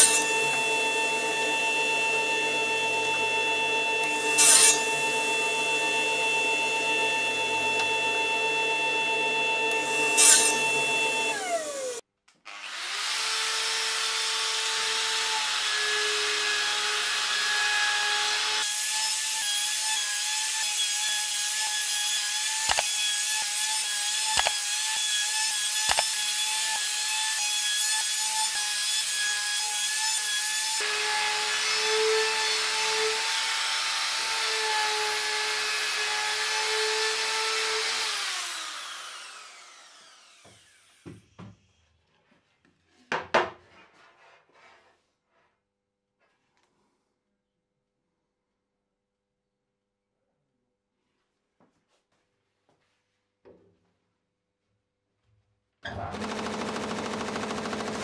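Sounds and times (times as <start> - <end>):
miter saw motor running: 0.0 - 12.0, 35.9 - 41.0, 55.9 - 58.0
router whining: 0.0 - 41.2, 55.9 - 58.0.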